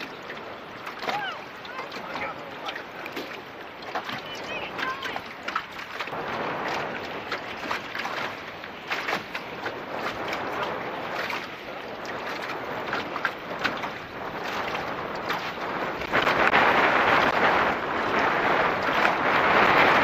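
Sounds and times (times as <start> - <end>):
water splashing against boat hull: 0.0 - 20.0.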